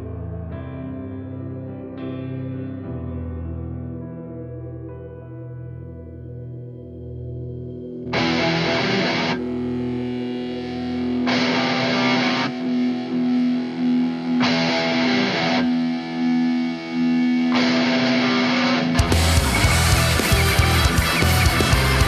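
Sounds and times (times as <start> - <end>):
distorted electric guitar: 7.4 - 22.0
rock band playing: 8.1 - 9.5, 10.6 - 22.0.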